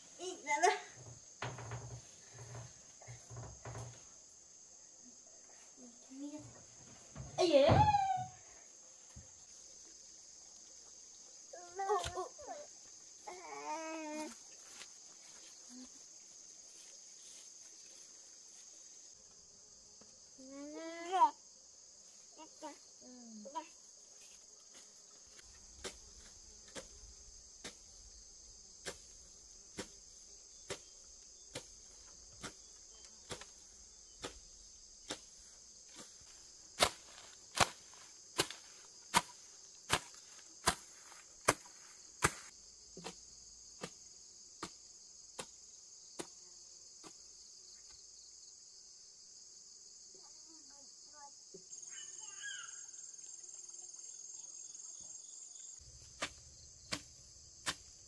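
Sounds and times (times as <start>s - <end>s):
crickets chirring: 0.0s - 58.0s
hand tool chopping into soil: 25.4s - 27.9s, 28.8s - 33.6s, 34.2s - 43.2s, 55.9s - 58.0s.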